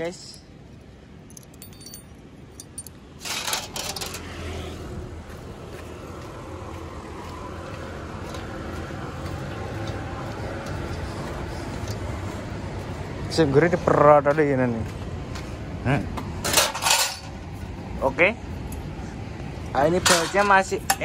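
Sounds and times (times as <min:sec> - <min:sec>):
low vehicle rumble: 0:00.0 - 0:16.4
metallic clinks of spanners: 0:01.2 - 0:04.0.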